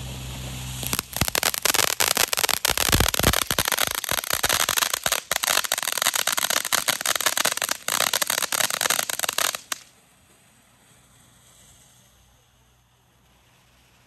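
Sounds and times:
fireworks crackling and popping: 0:00.0 - 0:09.9.

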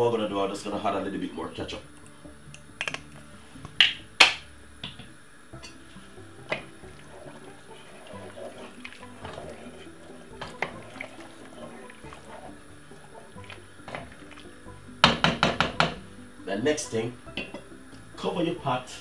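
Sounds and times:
liquid sloshing in pot: 0:05.6 - 0:16.3.

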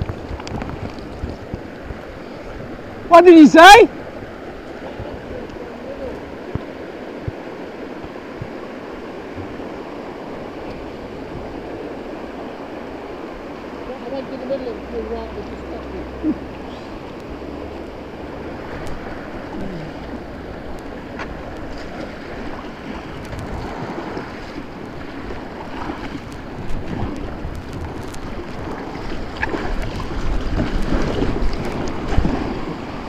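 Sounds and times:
river rapids rushing: 0:00.0 - 0:33.0
wind buffeting microphone: 0:00.0 - 0:33.0
sharp water splashes: 0:11.6 - 0:33.0.

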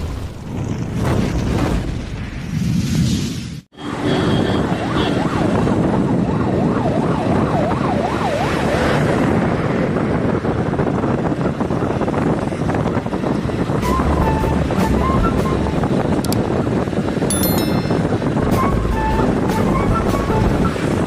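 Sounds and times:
road noise: 0:02.7 - 0:21.0
wind on microphone: 0:04.4 - 0:21.0.

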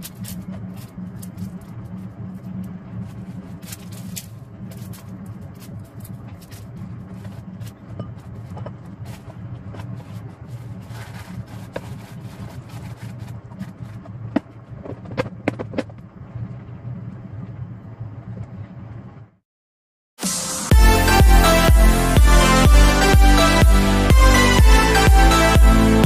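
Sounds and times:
steady low hum: 0:00.0 - 0:19.4
kitchen paper rustling: 0:02.4 - 0:14.0.

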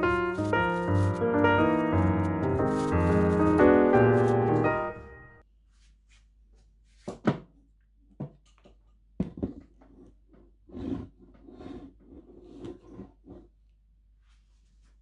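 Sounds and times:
scraping and rustling: 0:00.0 - 0:04.9.

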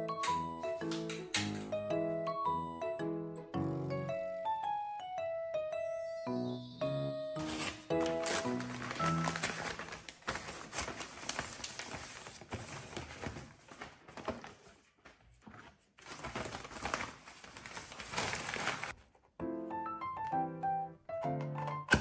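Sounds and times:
paper wrapping rustling and tearing: 0:07.4 - 0:19.2.

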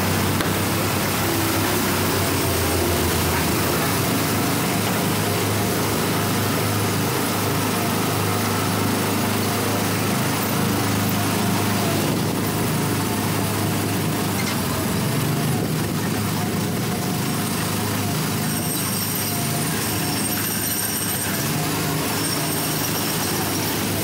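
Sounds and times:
small gasoline engine running: 0:00.0 - 0:24.0.

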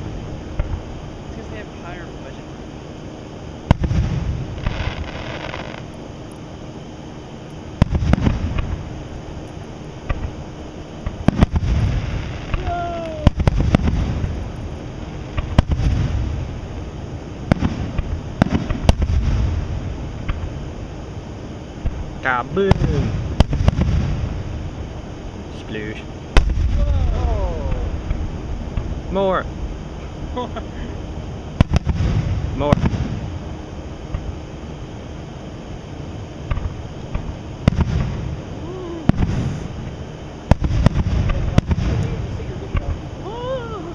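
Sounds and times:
low rumble of booms: 0:03.6 - 0:05.9, 0:07.8 - 0:09.2, 0:10.0 - 0:21.2, 0:21.8 - 0:25.4, 0:26.3 - 0:30.4, 0:31.0 - 0:34.4, 0:36.4 - 0:43.2
firework shells bursting: 0:03.6 - 0:06.0, 0:11.0 - 0:14.6, 0:15.2 - 0:16.8, 0:17.4 - 0:20.6, 0:21.8 - 0:24.6, 0:36.4 - 0:43.0.

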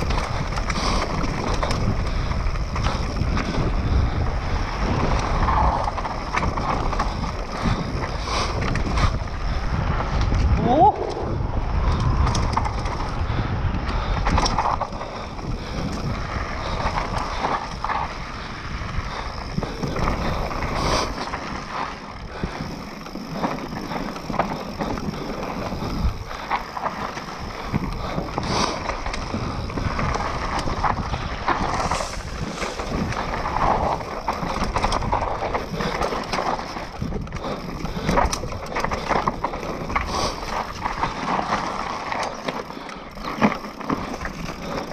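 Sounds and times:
bike rattling over bumps: 0:00.0 - 0:44.9
bike tyres rolling over dirt: 0:00.0 - 0:44.9.

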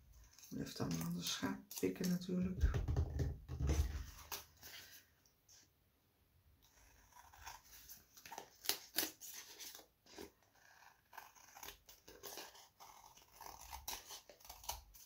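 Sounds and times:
scissors snipping paper: 0:06.6 - 0:15.0.

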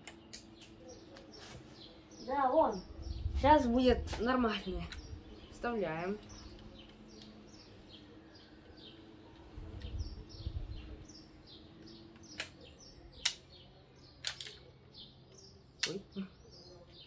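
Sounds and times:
sharp plastic clicks: 0:11.8 - 0:13.6, 0:14.2 - 0:14.7.

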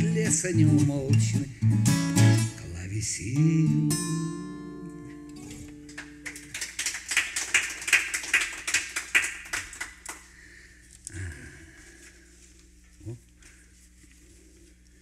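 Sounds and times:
acoustic guitar chord ringing: 0:00.0 - 0:06.4
people clapping: 0:05.6 - 0:10.3.

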